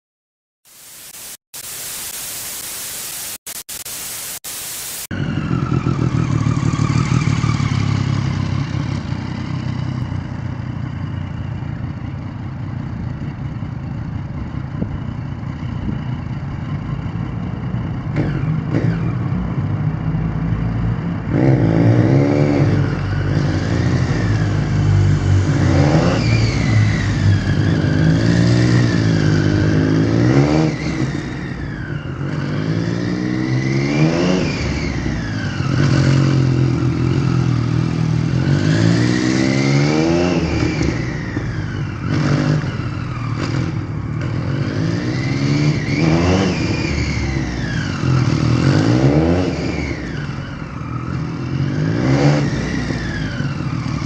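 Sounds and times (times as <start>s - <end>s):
harsh static burst: 0.6s - 5.1s
motorcycle engine revving: 5.1s - 54.0s.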